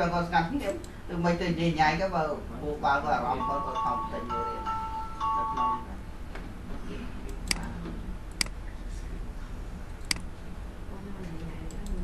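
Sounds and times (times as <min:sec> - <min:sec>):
low steady hum: 0:00.0 - 0:12.0
computer mouse clicks: 0:10.0 - 0:10.3.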